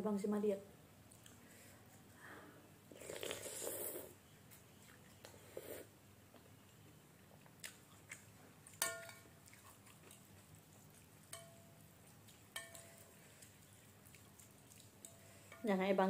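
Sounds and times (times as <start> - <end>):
faint chewing: 1.1 - 2.2, 2.9 - 15.7
cutlery clinking against glass bowl: 8.8 - 9.3, 11.3 - 13.2.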